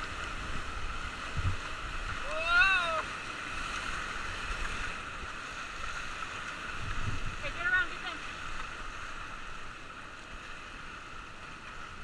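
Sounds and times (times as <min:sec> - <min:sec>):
whitewater rapid rushing: 0:00.0 - 0:12.0
person whooping: 0:02.2 - 0:03.1.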